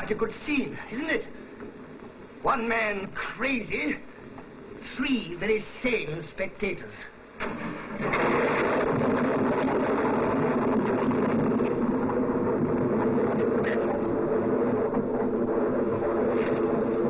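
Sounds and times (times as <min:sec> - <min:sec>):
electrical machinery humming: 0:00.0 - 0:17.0
electrical crackle: 0:07.4 - 0:17.0.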